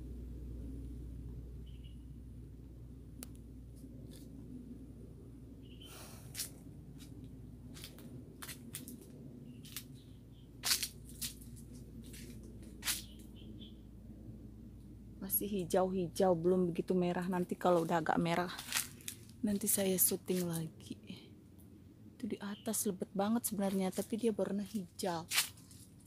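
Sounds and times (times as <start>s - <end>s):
steady low rumble: 0.0s - 26.0s
leaves and twigs rustling: 5.9s - 13.4s, 17.2s - 20.7s, 23.5s - 26.0s
loud crunches: 10.6s - 13.1s, 18.6s - 19.4s.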